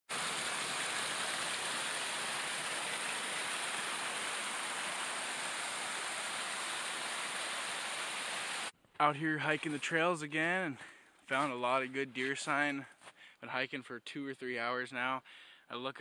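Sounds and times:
creek splashing over rocks: 0.1s - 8.7s.

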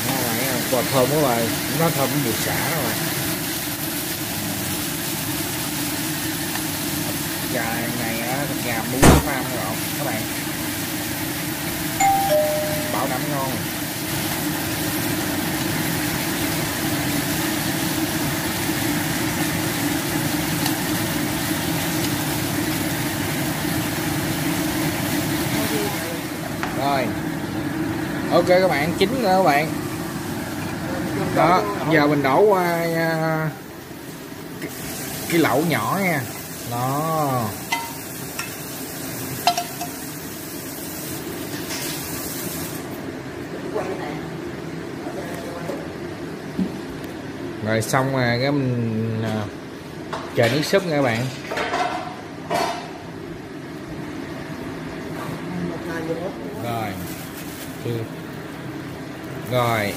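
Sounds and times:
chicken sizzling in a frying pan: 0.0s - 43.7s, 55.9s - 59.9s
frying pan clanking on pot: 39.4s - 40.0s.

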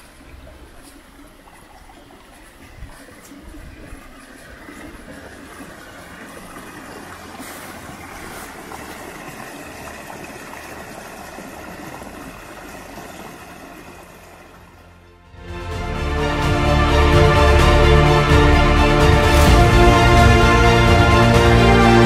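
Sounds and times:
brook rushing over stones: 0.0s - 14.8s.

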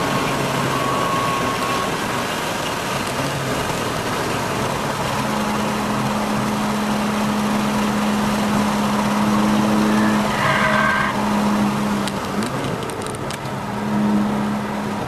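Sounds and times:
tyre squeal: 0.0s - 2.2s, 9.7s - 11.2s
car engine steady note: 0.0s - 15.0s
road and wind noise: 0.0s - 15.0s.

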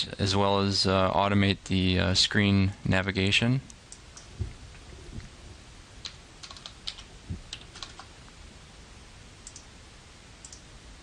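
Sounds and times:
computer keyboard keys tapping: 6.0s - 8.1s.

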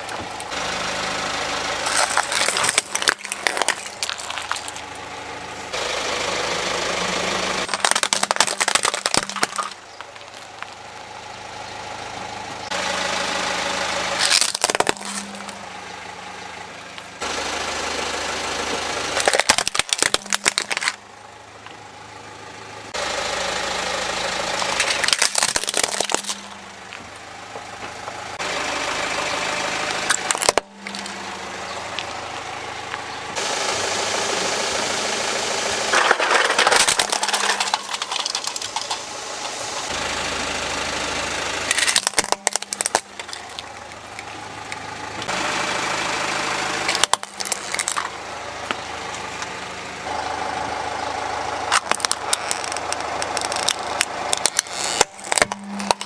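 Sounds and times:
car engine running: 0.0s - 56.0s
plastic toys crunching under tyres: 1.8s - 5.1s, 7.6s - 11.1s, 14.1s - 15.7s, 19.1s - 21.0s, 24.4s - 28.1s, 29.9s - 33.4s, 35.9s - 40.0s, 41.6s - 45.3s, 46.8s - 49.3s, 51.6s - 56.0s.

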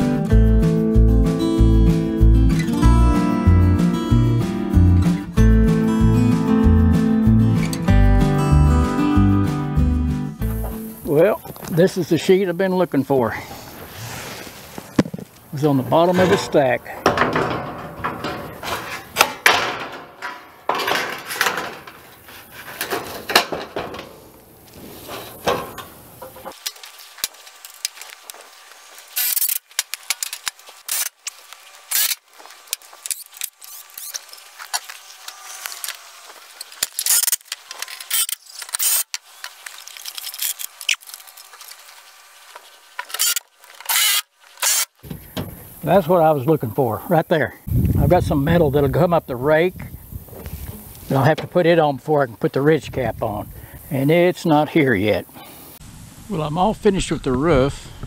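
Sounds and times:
metal roofing panels clanking: 15.8s - 26.6s.

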